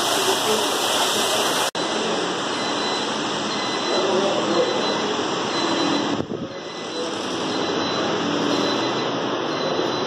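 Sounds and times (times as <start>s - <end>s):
water rushing down rock wall: 0.0s - 1.7s.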